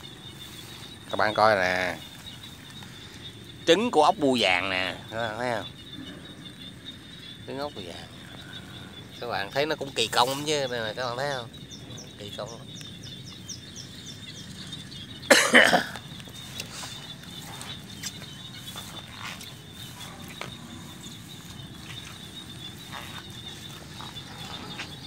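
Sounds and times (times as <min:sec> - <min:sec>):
frogs calling in chorus: 0:00.0 - 0:25.0
faint ticks: 0:12.7 - 0:13.7, 0:15.9 - 0:25.0.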